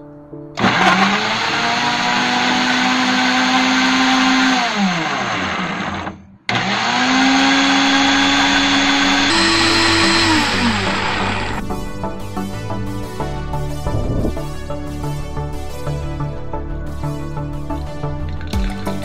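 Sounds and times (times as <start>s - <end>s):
blender motor running: 0.6s - 11.6s.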